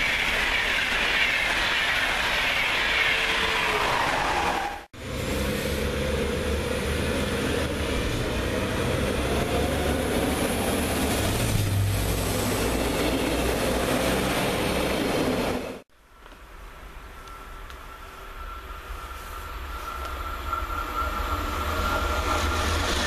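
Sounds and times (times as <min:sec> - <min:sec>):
diesel train engine humming: 0:00.0 - 0:23.0
passing train burst: 0:00.0 - 0:23.0
train wheels on rails: 0:00.0 - 0:23.0.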